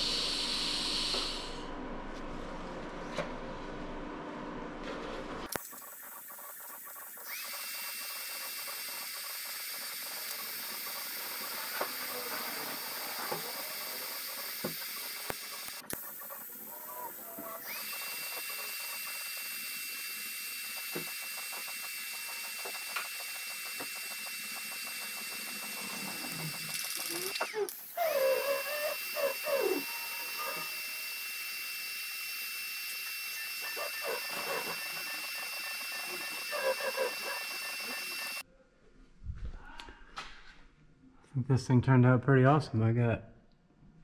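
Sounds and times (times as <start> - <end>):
welding arc hissing: 0.0 - 1.7, 5.5 - 38.4.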